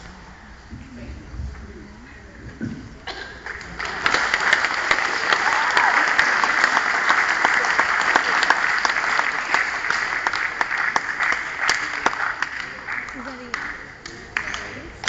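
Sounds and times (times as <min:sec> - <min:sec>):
audience applauding: 0:03.3 - 0:15.0.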